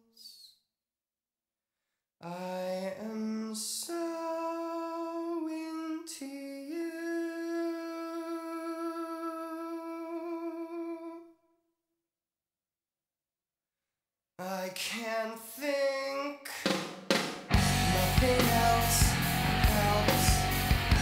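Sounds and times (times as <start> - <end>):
man singing wordless line: 2.2 - 11.3, 14.4 - 16.9, 17.6 - 21.0.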